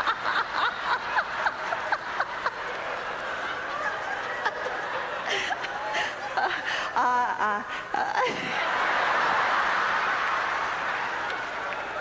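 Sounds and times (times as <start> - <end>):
woman laughing into microphone: 3.7 - 8.9.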